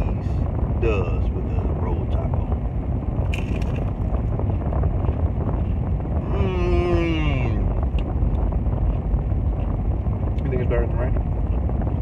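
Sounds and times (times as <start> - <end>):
low rumble inside a car: 0.0 - 12.0
man humming while eating: 6.2 - 7.4.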